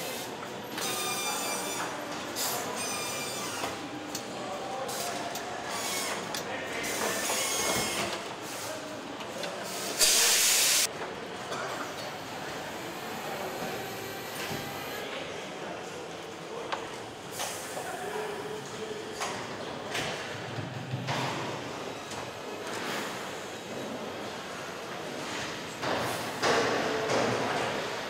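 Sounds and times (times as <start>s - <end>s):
compressed air hiss: 9.9s - 10.9s.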